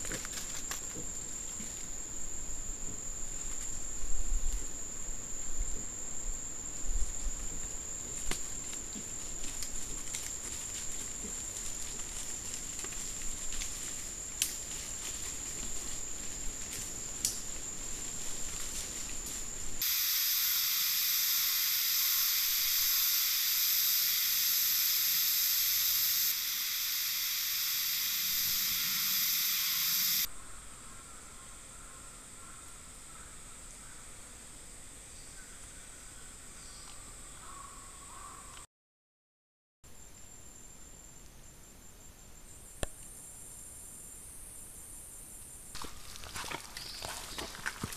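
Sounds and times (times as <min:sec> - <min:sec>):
animals rustling in leaf litter: 0:08.1 - 0:19.8, 0:45.8 - 0:47.9
loud steady hiss: 0:16.8 - 0:30.9
insect trilling: 0:19.8 - 0:30.3.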